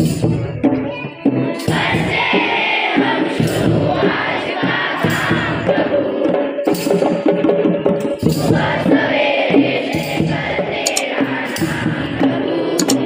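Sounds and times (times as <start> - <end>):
group of voices singing: 0.7 - 13.0
tambourine jingles: 6.7 - 7.2
hand drum strokes: 12.8 - 13.0.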